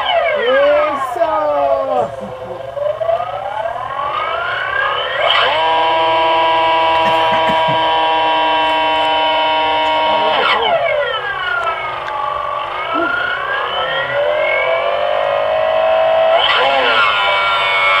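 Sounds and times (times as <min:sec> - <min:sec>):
model airplane motor droning: 0:04.1 - 0:18.0.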